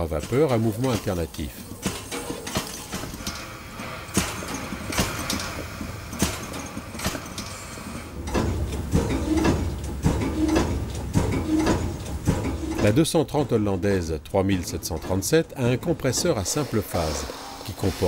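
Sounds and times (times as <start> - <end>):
steam pump knocking: 0.0 - 18.0
steam hiss: 2.9 - 8.2, 16.1 - 18.0.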